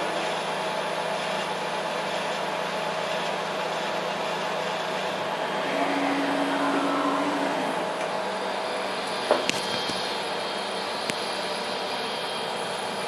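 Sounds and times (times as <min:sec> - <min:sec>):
whooshing machine noise: 0:04.7 - 0:09.2.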